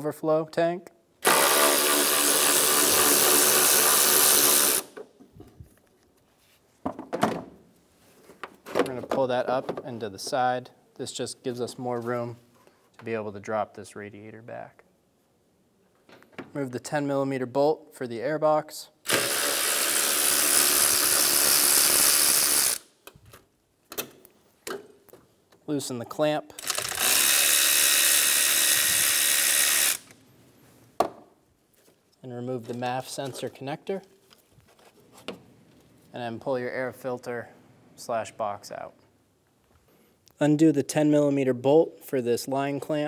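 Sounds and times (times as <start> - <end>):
power tool spinning a socket: 1.2 - 5.0, 19.1 - 22.9, 26.6 - 30.2
ratchet wrench clicking: 26.6 - 30.1.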